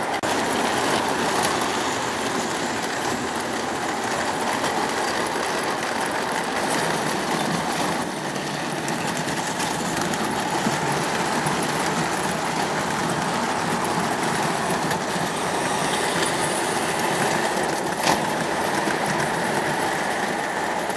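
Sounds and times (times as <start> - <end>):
locomotive motor: 0.0 - 20.9
model train wheels rolling on rail: 0.0 - 20.9.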